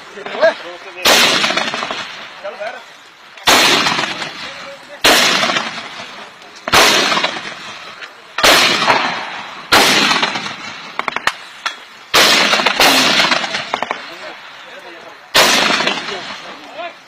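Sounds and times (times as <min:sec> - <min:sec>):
machine gun firing: 0:01.0 - 0:02.1, 0:03.5 - 0:04.4, 0:05.0 - 0:05.9, 0:06.7 - 0:07.6, 0:08.4 - 0:11.3, 0:12.1 - 0:14.0, 0:15.4 - 0:16.3.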